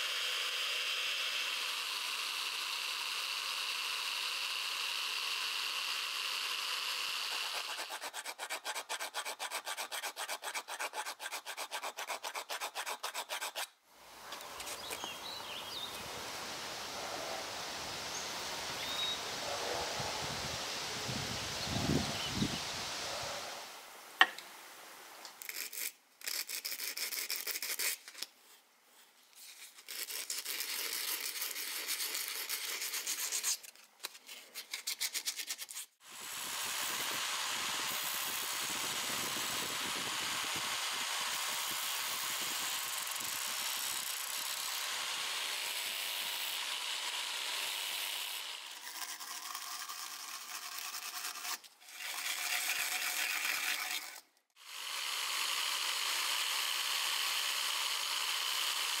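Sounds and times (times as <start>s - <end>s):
sandpaper rubbing on metal: 7.3s - 13.7s, 25.4s - 28.2s, 29.3s - 36.0s, 48.8s - 54.2s
wire brush scrubbing metal: 7.3s - 13.7s, 47.6s - 54.2s
grinding wheel hiss: 36.1s - 46.8s.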